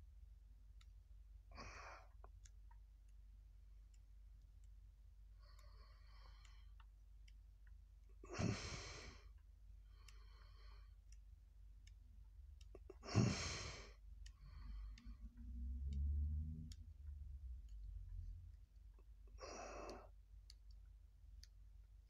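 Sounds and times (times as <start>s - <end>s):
low handling rumble: 14.9s - 19.0s.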